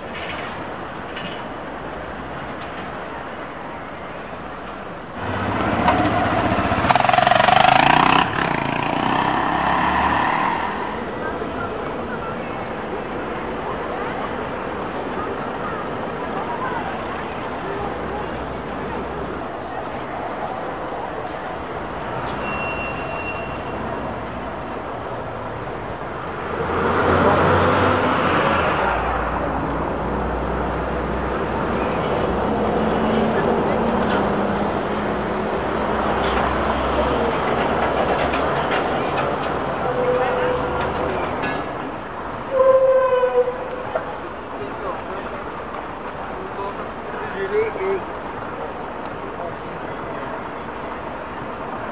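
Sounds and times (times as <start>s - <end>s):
city street traffic: 0.0s - 51.9s
tram rumble: 0.0s - 51.9s
trolleybus passing: 0.0s - 51.9s
tram wheels squealing on rails: 2.8s - 24.7s, 31.5s - 34.7s, 36.0s - 48.1s
brief high squeal: 22.3s - 23.8s.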